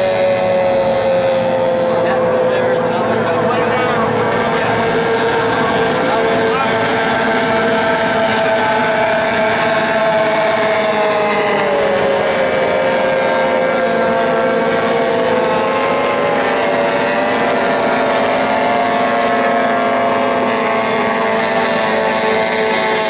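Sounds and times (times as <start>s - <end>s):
racing boat motors whining: 0.0s - 23.0s.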